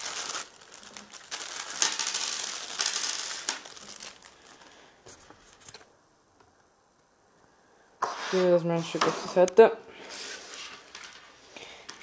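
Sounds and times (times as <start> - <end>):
plastic bag crinkling: 0.0 - 4.9, 10.1 - 12.0.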